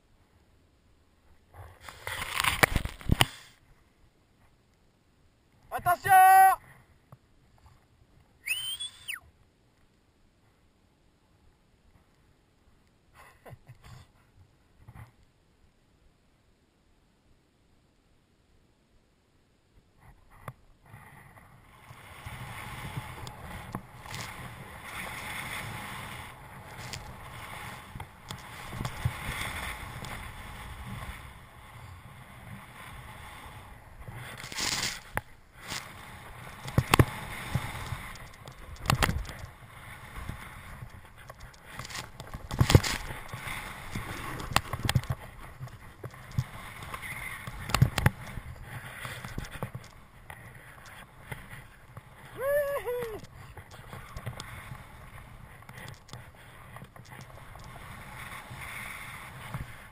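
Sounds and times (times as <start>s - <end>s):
snowboard sliding through snow: 20.0s - 59.9s
snowboard swishing through powder: 21.9s - 38.2s, 42.6s - 44.5s.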